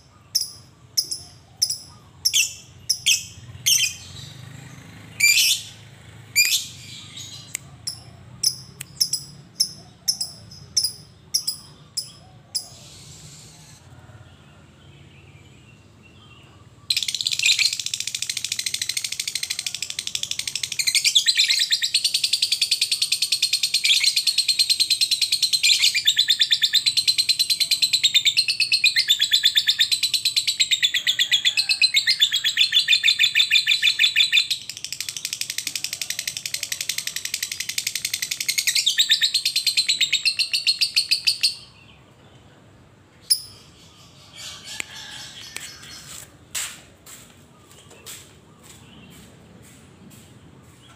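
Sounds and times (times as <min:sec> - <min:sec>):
lovebird chirping and trilling: 0:00.3 - 0:05.8, 0:06.4 - 0:13.8, 0:16.9 - 0:41.8, 0:43.2 - 0:46.3.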